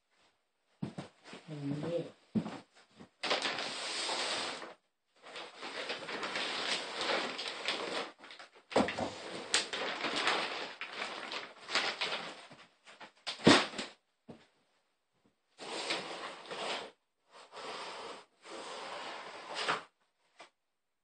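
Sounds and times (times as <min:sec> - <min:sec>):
plastic bag rustling and crinkling: 0:03.2 - 0:14.0.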